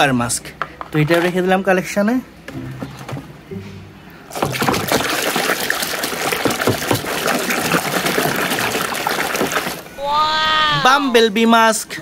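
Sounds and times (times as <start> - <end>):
water sloshing in a plastic basin: 4.3 - 9.9.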